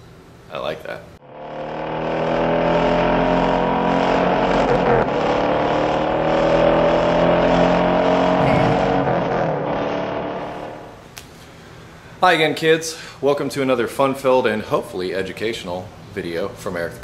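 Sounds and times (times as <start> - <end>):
car engine at high revs: 1.2 - 11.0.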